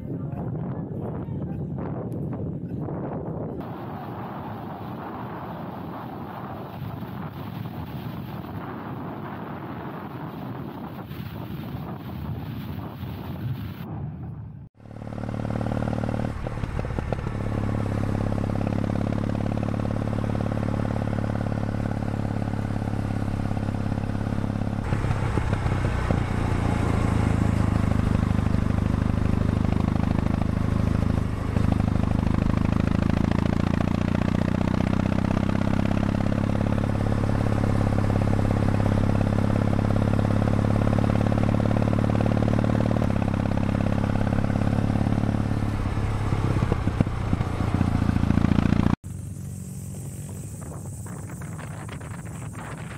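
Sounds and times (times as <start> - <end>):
road and wind noise: 0.0 - 52.9
motorcycle engine running: 14.8 - 52.9.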